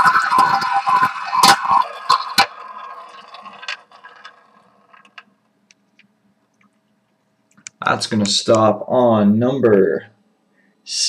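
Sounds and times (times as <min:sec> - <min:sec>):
roulette ball rolling: 0:00.0 - 0:06.8.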